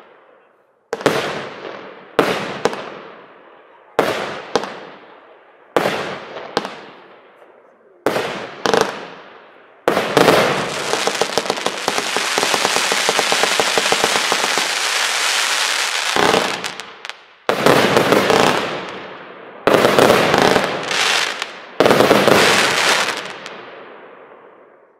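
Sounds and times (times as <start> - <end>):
firework bangs: 0.9 - 3.2, 5.7 - 7.3, 8.0 - 24.7
rapid firework firing: 9.9 - 19.0, 19.7 - 23.6.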